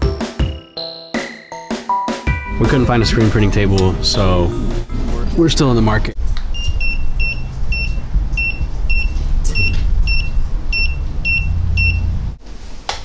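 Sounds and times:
steady low rumble: 2.6s - 12.4s
thermometer beeping: 6.5s - 12.1s.

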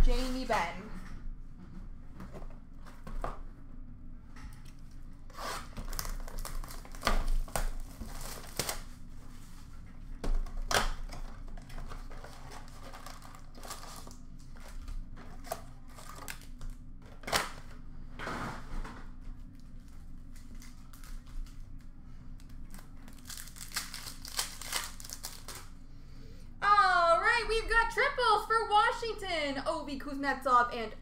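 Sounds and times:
tearing cardboard and wrappers: 5.3s - 9.6s, 10.4s - 17.8s, 19.8s - 21.7s, 22.4s - 25.8s
wrapper crinkling and rustling: 5.6s - 9.0s, 10.6s - 17.6s, 19.7s - 21.8s, 22.4s - 25.7s.

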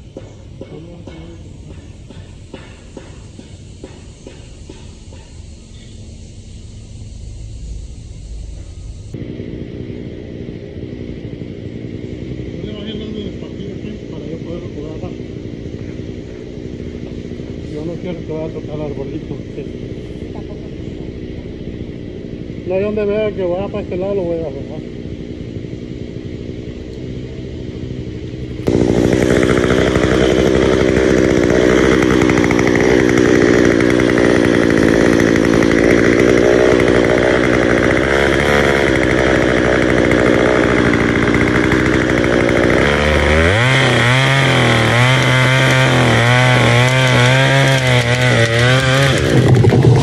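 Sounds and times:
chainsaw cutting tree trunk: 10.8s - 18.8s, 27.8s - 50.0s.

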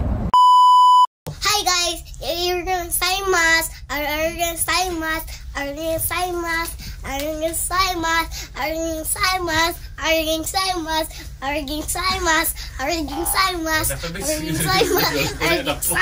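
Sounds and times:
child singing: 1.4s - 15.7s.

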